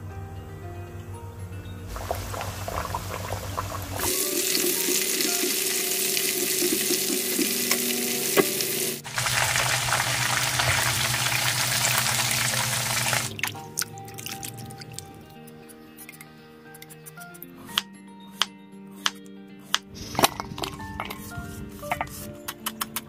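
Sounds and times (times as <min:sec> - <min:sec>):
food deep-frying in oil: 0:01.9 - 0:13.4.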